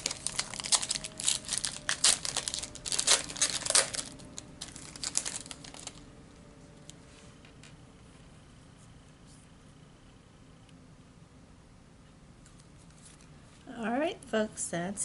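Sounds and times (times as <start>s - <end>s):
foil wrapper crinkling: 0.0s - 6.1s.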